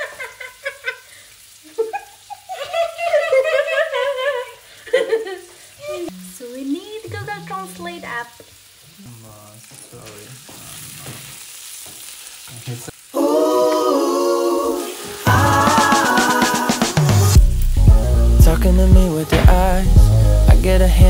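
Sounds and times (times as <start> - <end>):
voices and laughter: 0.0 - 6.1
chicken sizzling in oil: 0.0 - 17.9
pop song with singing: 13.1 - 21.0.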